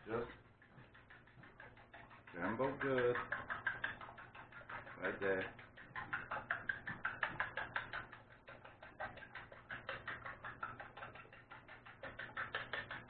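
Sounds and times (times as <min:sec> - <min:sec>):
fork beating eggs in bowl: 0:00.0 - 0:13.0.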